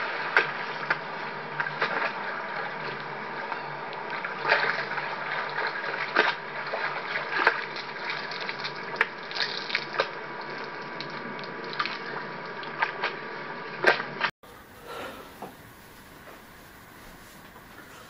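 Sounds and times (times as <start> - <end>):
pool water splashing: 0.0 - 13.1, 13.8 - 18.0
steady hiss: 14.5 - 18.0.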